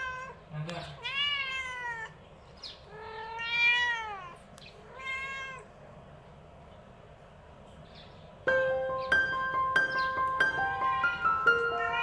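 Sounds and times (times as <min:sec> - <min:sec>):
cat meowing: 0:00.0 - 0:02.2, 0:02.8 - 0:05.8, 0:10.6 - 0:12.0.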